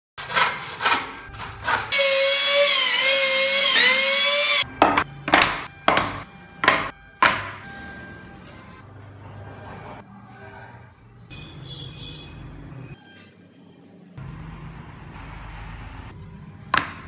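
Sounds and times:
electric hand planer whining: 1.6s - 4.6s
wooden boards knocking on stack: 4.8s - 7.5s.

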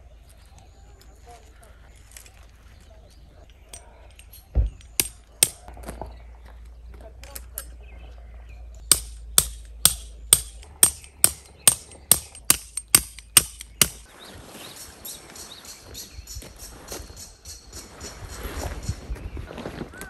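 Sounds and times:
hammer striking metal tent peg: 4.7s - 5.7s, 8.8s - 14.1s.

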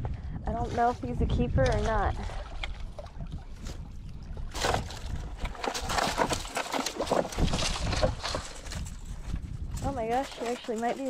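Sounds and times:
wind rumble on microphone: 0.0s - 11.0s
fish thrashing and splashing: 1.9s - 9.2s.

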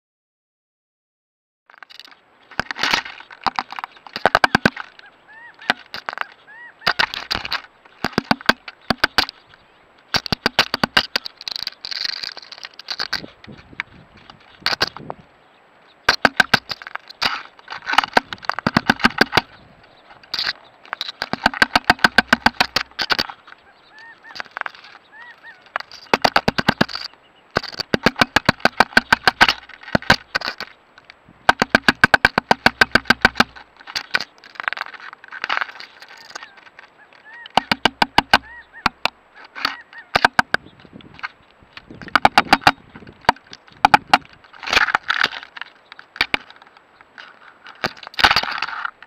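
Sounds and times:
woodpecker knocking on plastic: 1.9s - 9.4s, 10.1s - 15.1s, 16.1s - 19.6s, 20.2s - 48.9s.

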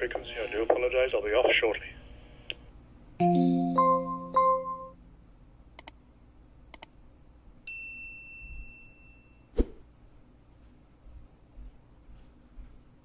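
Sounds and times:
bell-like ding: 3.2s - 5.0s, 7.7s - 9.5s.

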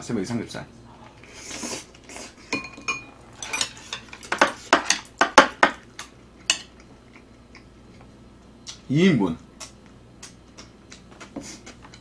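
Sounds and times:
chopsticks and spoon clinking on plates: 2.4s - 7.2s.

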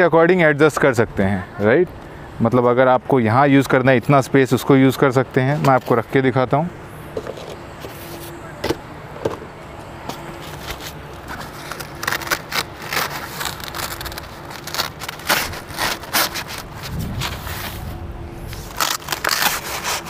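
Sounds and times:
nylon fabric rustling and scraping: 10.1s - 20.0s.

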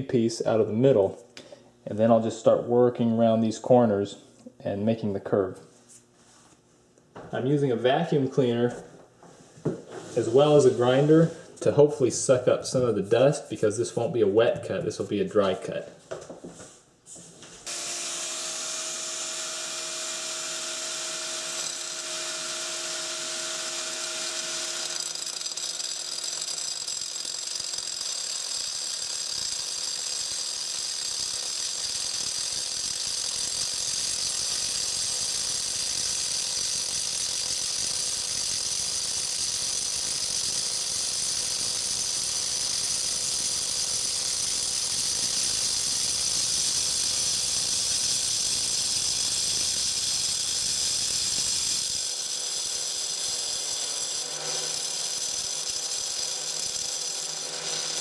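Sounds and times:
angle grinder cutting stone: 17.7s - 58.0s.

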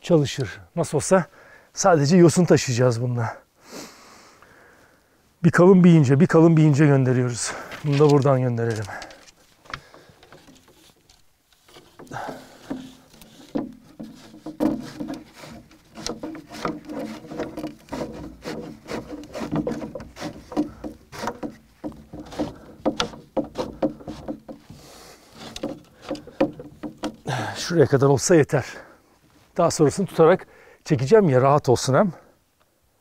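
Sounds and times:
dry sticks creaking and scraping: 6.8s - 30.4s.

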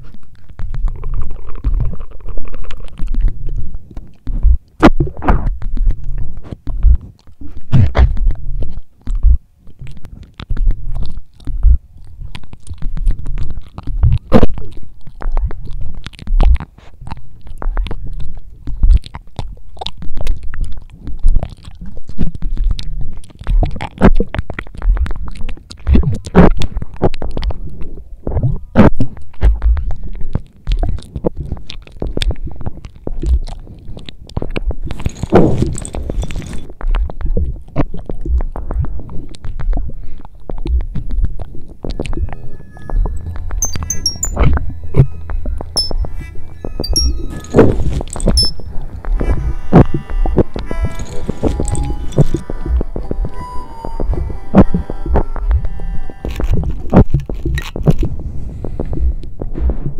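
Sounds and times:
chewing crunches: 0.0s - 42.3s, 56.2s - 58.1s.

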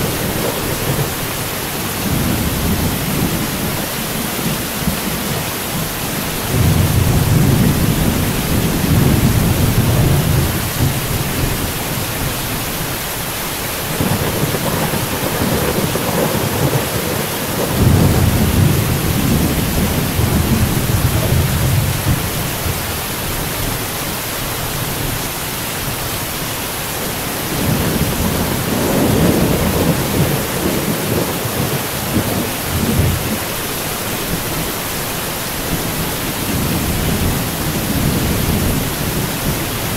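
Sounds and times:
rolling thunder rumbling: 0.0s - 12.8s, 13.8s - 23.8s, 27.0s - 33.6s
steady rain hissing: 0.0s - 39.9s.

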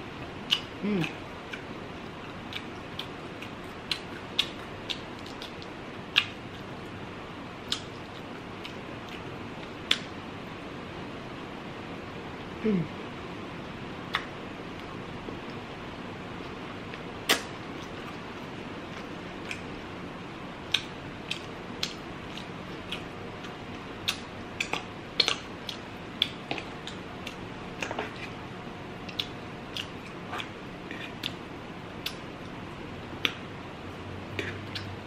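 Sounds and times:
steady low hiss: 0.0s - 35.0s
person chewing soft food: 0.2s - 7.0s, 7.6s - 10.6s, 16.4s - 19.8s, 20.6s - 28.4s, 29.0s - 33.5s, 34.2s - 35.0s.

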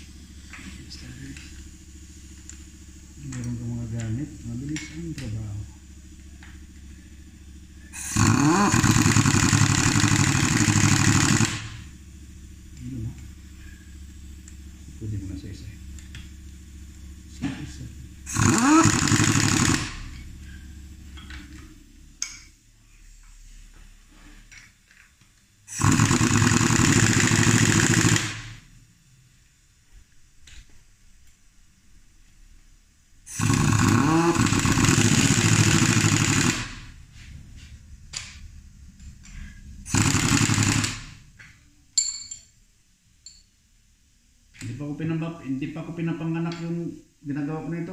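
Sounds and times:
steady low hum: 0.0s - 47.9s
pneumatic impact wrench hammering: 7.8s - 12.0s, 17.4s - 20.6s, 25.7s - 28.6s, 33.3s - 37.0s, 39.3s - 42.4s.

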